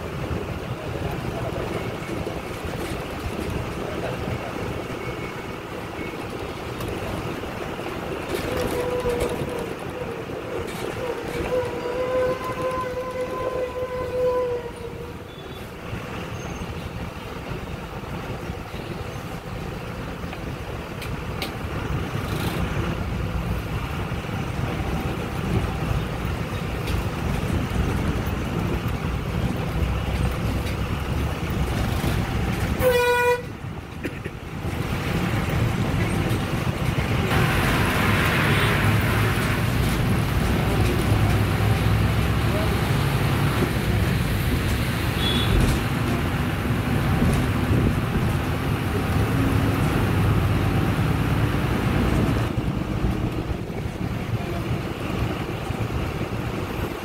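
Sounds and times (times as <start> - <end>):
low rumble of traffic: 0.0 - 57.0
vehicle horn: 11.4 - 14.7, 32.8 - 33.5, 45.2 - 45.7.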